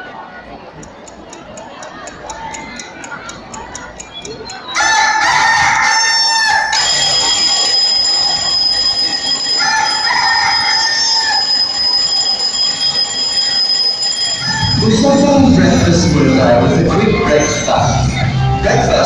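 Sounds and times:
clock ticking: 0:00.8 - 0:04.8
steady high alarm tone: 0:04.6 - 0:19.0
rooster crowing: 0:04.8 - 0:06.9, 0:09.5 - 0:11.6
fast ringing: 0:06.2 - 0:17.7
dance music: 0:14.4 - 0:19.0.

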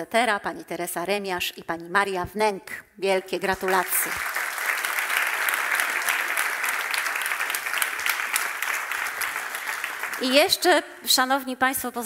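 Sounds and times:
audience applauding: 0:03.6 - 0:10.6.

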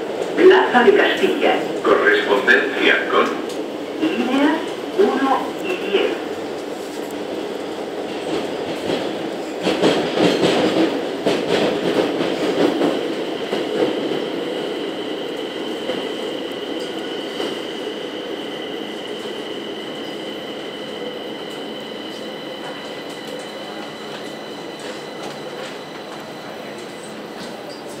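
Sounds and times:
train running noise with whine: 0:00.0 - 0:28.0
train wheels rattling: 0:07.1 - 0:17.8.

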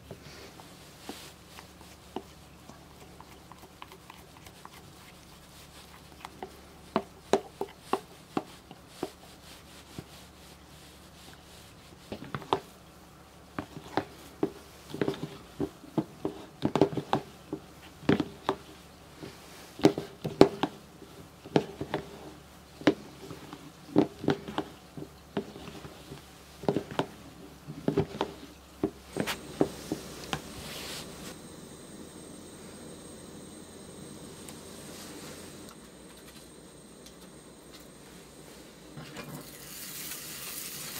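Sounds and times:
gas burner hissing: 0:29.0 - 0:40.9.

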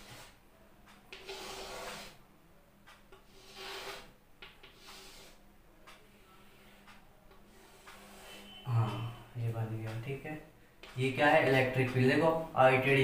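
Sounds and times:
chalk scraping on blackboard: 0:00.0 - 0:00.4, 0:01.1 - 0:02.2, 0:03.2 - 0:05.4, 0:07.5 - 0:08.6
chalk ticks: 0:00.9 - 0:02.2, 0:02.9 - 0:09.2, 0:10.8 - 0:12.2.

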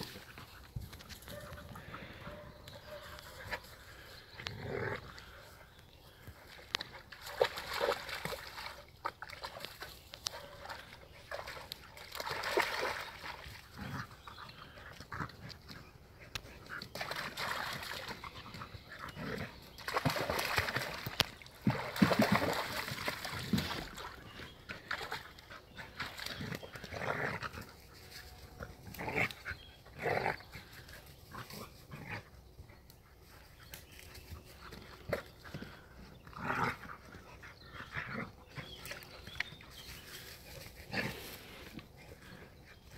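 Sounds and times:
dog noises: 0:01.1 - 0:05.6
dog splashing through water: 0:07.1 - 0:10.0, 0:10.6 - 0:13.7, 0:16.9 - 0:18.6, 0:19.7 - 0:24.3.

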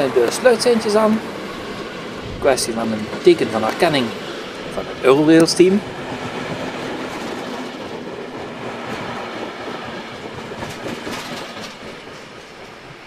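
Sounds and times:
train coaches rolling past: 0:00.0 - 0:13.0
wheel clicks over rail joints: 0:08.8 - 0:12.8.

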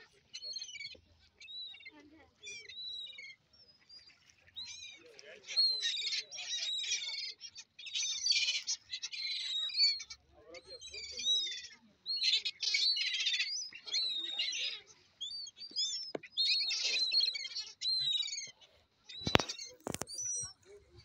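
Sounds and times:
gulls calling: 0:04.6 - 0:21.0.

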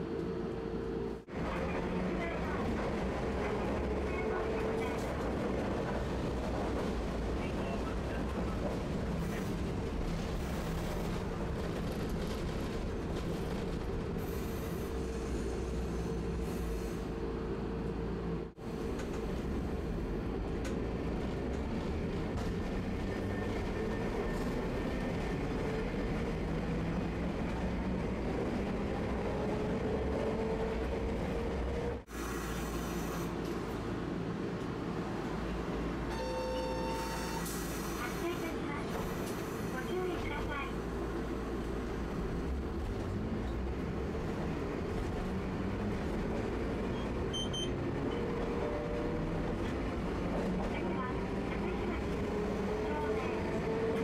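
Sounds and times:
streetcar wheels rumbling: 0:00.0 - 0:54.0.

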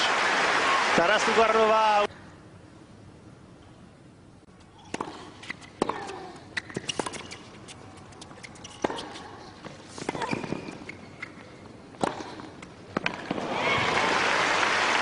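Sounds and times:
sneakers squeaking: 0:04.6 - 0:13.4
tennis ball bouncing: 0:04.6 - 0:13.5
racket striking ball: 0:04.8 - 0:09.3, 0:12.0 - 0:13.4.

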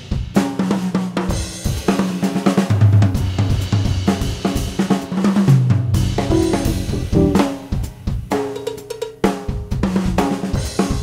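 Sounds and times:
jazz drum kit: 0:06.0 - 0:08.6
bass guitar notes: 0:06.3 - 0:07.6
guitar notes: 0:06.3 - 0:07.6.

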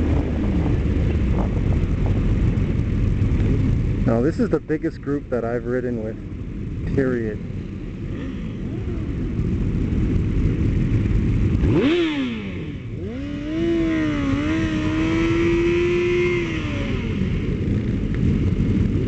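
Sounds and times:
motorcycle engines revving: 0:00.0 - 0:19.0
motorcycle engine at high revs: 0:06.6 - 0:19.0.

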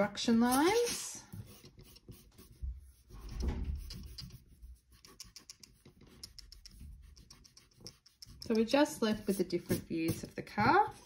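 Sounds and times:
eraser scrubbing on paper: 0:00.6 - 0:10.5.

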